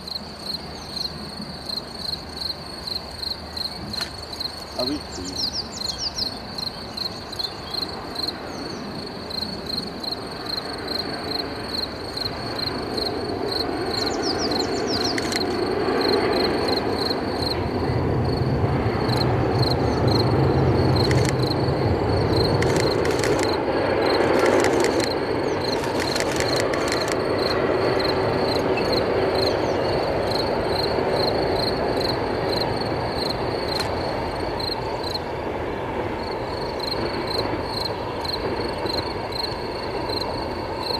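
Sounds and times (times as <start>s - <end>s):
cricket chirping: 0.0s - 40.9s
train rumbling over viaduct: 0.0s - 40.9s
sharp clicks from wheels: 15.0s - 15.6s, 22.4s - 27.6s, 33.7s - 34.0s.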